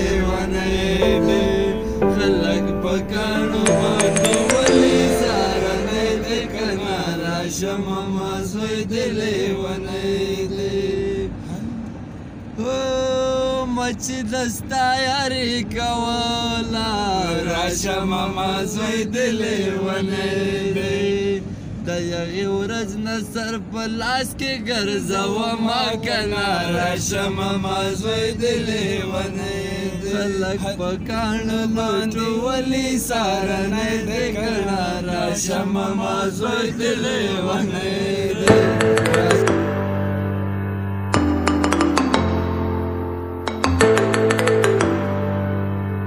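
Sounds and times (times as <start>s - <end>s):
men singing together: 24.8s - 39.7s.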